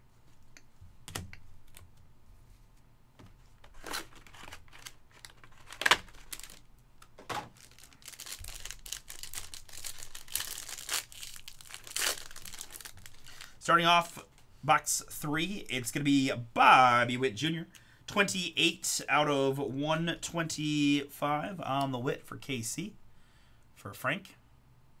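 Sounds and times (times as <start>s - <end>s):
plastic wrapper crinkling and tearing: 3.7s - 13.6s.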